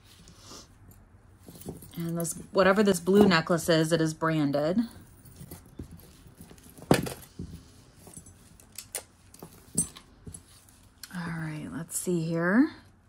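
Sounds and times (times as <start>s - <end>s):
necklace clicking and clinking: 8.0s - 11.1s.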